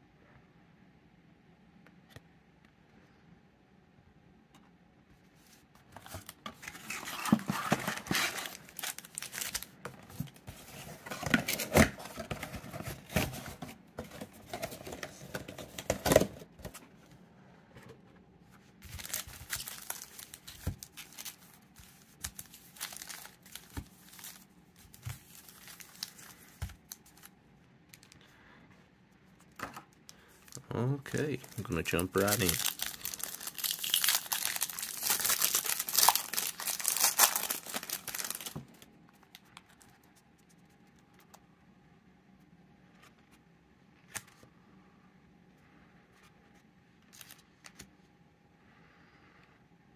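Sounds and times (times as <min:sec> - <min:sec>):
foil packs crinkling: 0:06.0 - 0:16.4, 0:18.8 - 0:27.3, 0:30.2 - 0:38.8
cardboard box being handled: 0:06.0 - 0:16.8.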